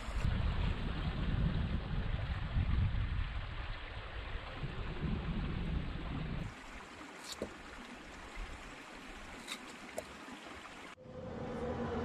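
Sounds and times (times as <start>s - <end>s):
wind buffeting microphone: 0.0s - 6.5s
steady outdoor hiss: 3.0s - 12.0s.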